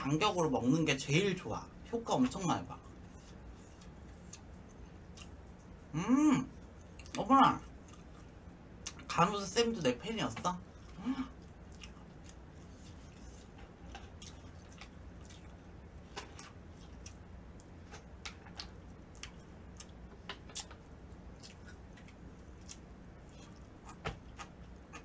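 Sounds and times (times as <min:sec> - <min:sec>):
low steady hum: 0:00.0 - 0:25.0
chewing sounds: 0:03.0 - 0:05.9, 0:06.5 - 0:09.1, 0:10.7 - 0:25.0.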